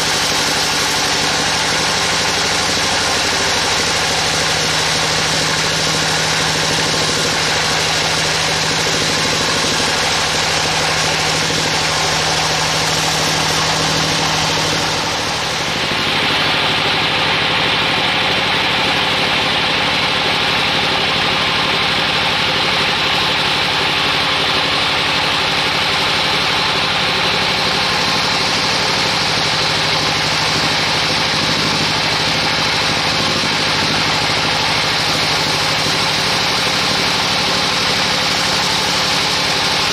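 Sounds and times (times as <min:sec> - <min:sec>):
band saw blade hissing through log: 0:00.0 - 0:19.1
machine hum: 0:00.0 - 0:39.9.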